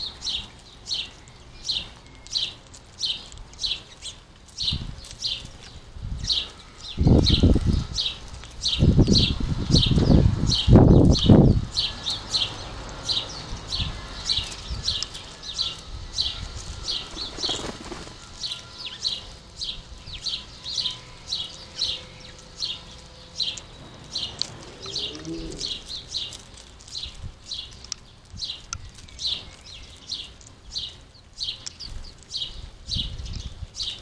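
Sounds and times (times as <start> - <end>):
sparrows chirping: 0.0 - 34.0
low wing flutter: 16.7 - 18.2.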